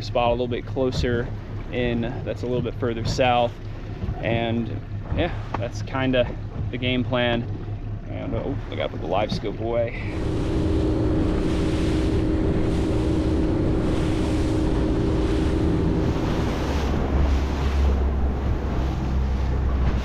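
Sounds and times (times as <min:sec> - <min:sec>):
outboard motor running: 0:00.0 - 0:20.0
water rushing along hull: 0:00.0 - 0:20.0
wind buffeting microphone: 0:00.8 - 0:20.0.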